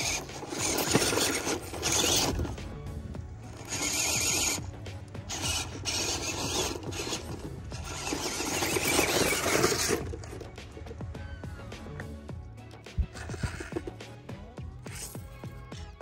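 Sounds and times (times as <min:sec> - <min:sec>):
tyres grinding over soil clods: 0:00.0 - 0:11.2, 0:13.0 - 0:14.1
electric motor and gearbox whirring: 0:00.0 - 0:16.0.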